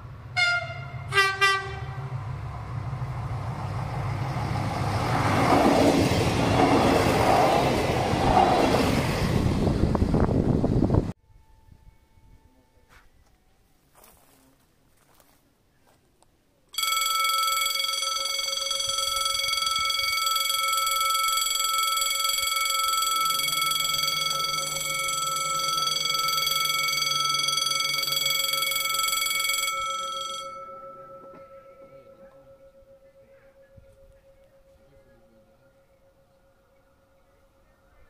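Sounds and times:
faint tone: 11.3 - 13.8, 16.8 - 38.0
level crossing warning bell ringing: 16.8 - 38.0.

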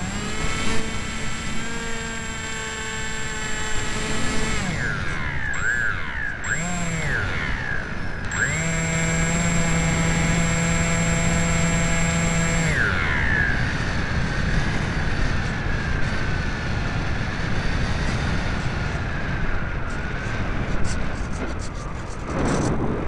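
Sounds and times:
electric motor and propeller whine: 0.0 - 23.0
wind rush: 12.9 - 23.0.

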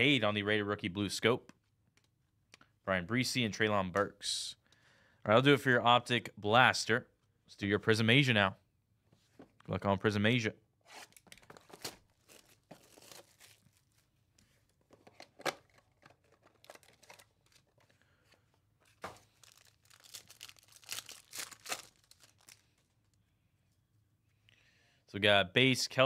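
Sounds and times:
card-pack wrapper tearing: 11.0 - 14.0, 15.7 - 17.8, 19.2 - 22.9
plastic shrink wrap crinkling: 11.2 - 14.2, 15.7 - 18.0, 18.8 - 23.2.

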